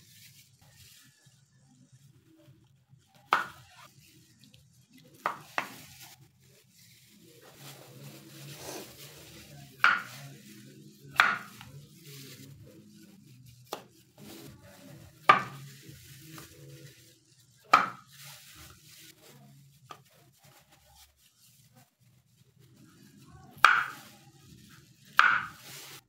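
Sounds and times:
knife chopping on wooden board: 0:09.8 - 0:10.1, 0:11.1 - 0:11.6, 0:15.3 - 0:15.6, 0:17.7 - 0:18.0, 0:23.6 - 0:24.0, 0:25.2 - 0:25.6.

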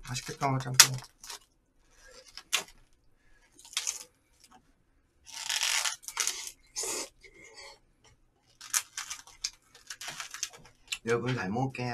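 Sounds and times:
plastic packaging crinkling: 0:00.0 - 0:04.6, 0:05.3 - 0:06.6, 0:08.5 - 0:11.0
film peeling off: 0:05.3 - 0:06.5.

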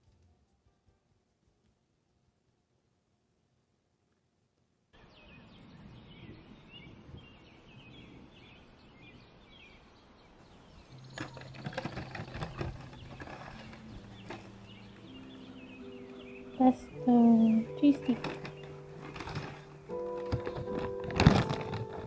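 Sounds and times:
small birds chirping: 0:05.0 - 0:22.0
paper bag rustling: 0:11.2 - 0:14.8, 0:17.7 - 0:22.0.

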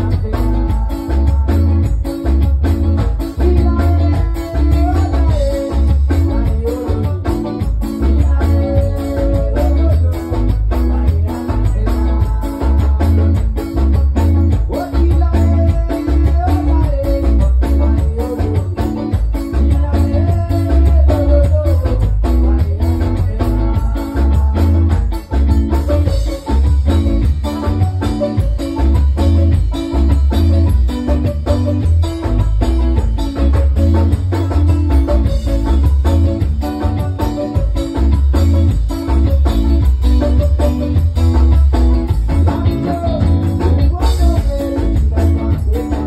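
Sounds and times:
live band playing: 0:00.0 - 0:46.0
melody line: 0:24.1 - 0:46.0.

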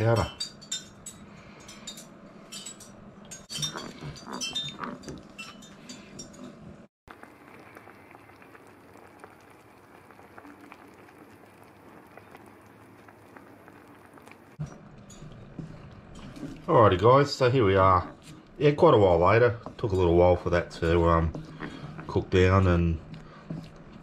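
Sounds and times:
metal spoon clinking: 0:00.2 - 0:06.5
gravy bubbling and popping: 0:07.1 - 0:24.0.

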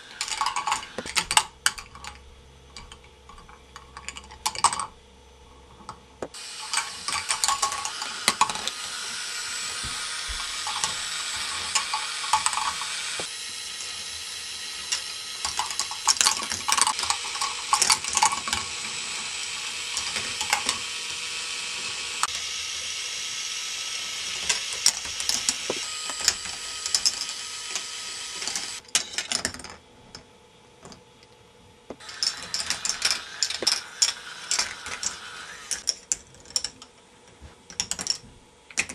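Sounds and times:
plastic balls clattering on tracks: 0:00.1 - 0:02.2, 0:06.5 - 0:08.8, 0:09.8 - 0:13.3, 0:14.8 - 0:18.9, 0:32.0 - 0:36.8
motor lifts whirring: 0:06.3 - 0:28.8, 0:32.0 - 0:35.9.

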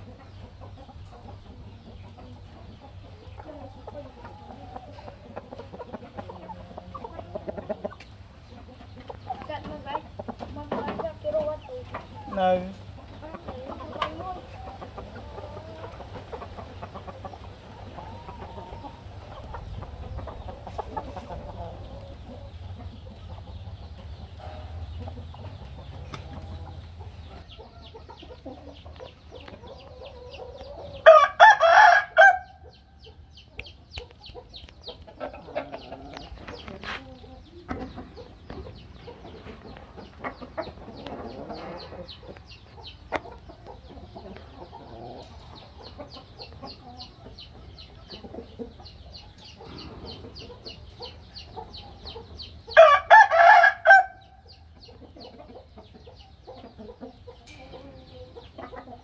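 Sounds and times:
chickens clucking softly: 0:00.0 - 0:59.0
rooster crowing: 0:31.0 - 0:32.6, 0:52.8 - 0:54.2.

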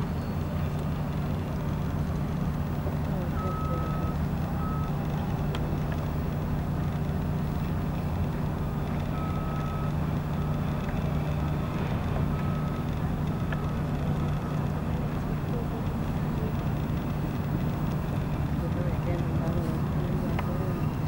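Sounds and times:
diesel engine drone: 0:00.0 - 0:21.0
reversing alarm beeping: 0:03.2 - 0:05.2, 0:09.1 - 0:14.7.

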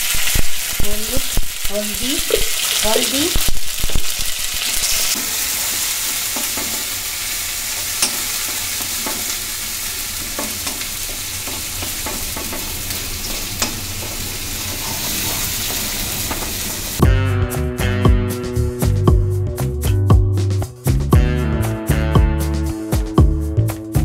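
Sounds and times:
food sizzling in hot oil: 0:00.0 - 0:17.0
metal spoon scraping pan: 0:10.2 - 0:16.5.

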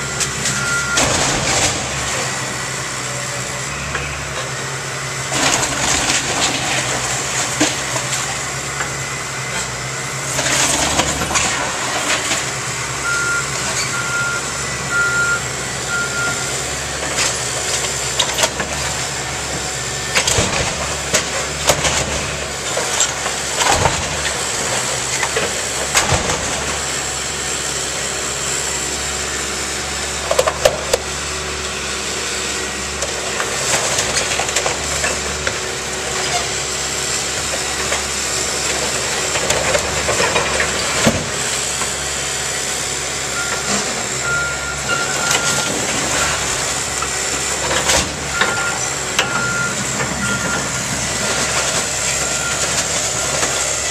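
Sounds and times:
backup alarm beeping: 0:00.0 - 0:01.2, 0:13.0 - 0:16.5, 0:43.4 - 0:46.4, 0:48.3 - 0:50.9
excavator diesel engine: 0:00.0 - 0:53.9.

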